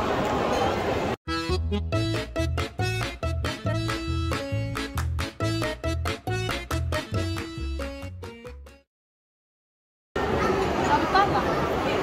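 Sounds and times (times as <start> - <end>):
music with pulsing bass: 1.3 - 8.8.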